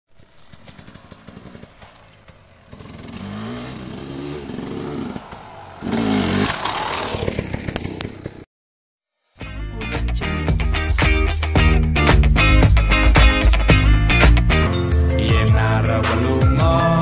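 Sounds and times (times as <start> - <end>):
dirt bike engine revving: 0.2 - 8.4.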